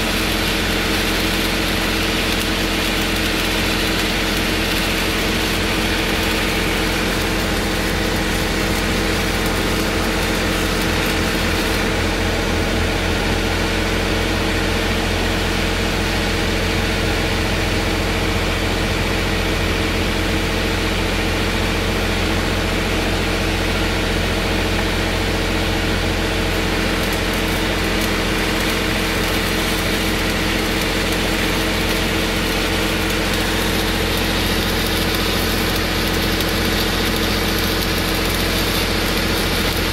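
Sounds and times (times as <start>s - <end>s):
welding arc crackling: 0.0s - 13.3s, 23.6s - 39.9s.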